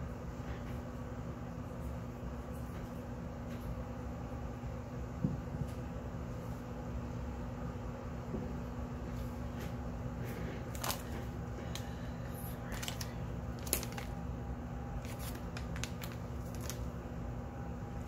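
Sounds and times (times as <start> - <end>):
steady low hum: 0.0 - 18.0
paper packets rustling: 10.3 - 14.2, 14.9 - 17.0.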